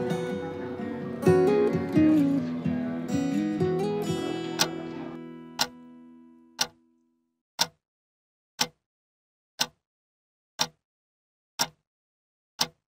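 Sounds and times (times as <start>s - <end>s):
acoustic guitar chord ringing: 0.0s - 6.5s
clock ticking: 3.3s - 5.9s, 6.6s - 6.8s, 7.6s - 7.8s, 8.6s - 8.8s, 9.6s - 9.8s, 10.6s - 10.8s, 11.6s - 11.8s, 12.6s - 12.8s.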